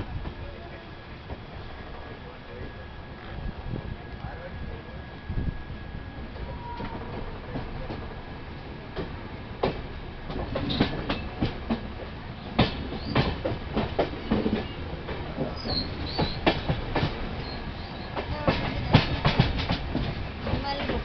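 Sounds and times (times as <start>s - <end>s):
steady rolling rumble: 0.0s - 21.0s
train wheels clattering over rails: 6.4s - 21.0s
brief high squeaks: 6.5s - 7.2s.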